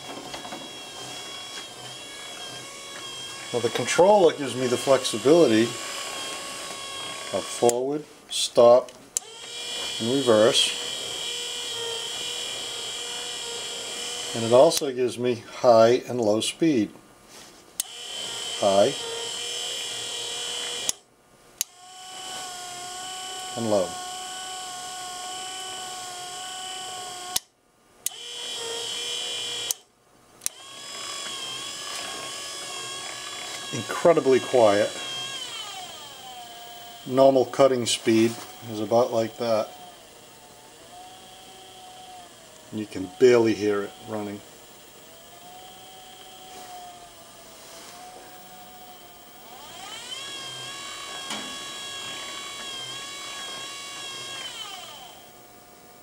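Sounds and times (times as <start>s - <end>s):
electric motor whining: 0.0s - 14.9s, 17.8s - 21.0s, 21.6s - 27.5s, 28.1s - 55.8s
click: 8.9s - 9.3s, 20.8s - 21.0s, 27.3s - 28.2s, 29.6s - 29.8s, 30.4s - 30.6s.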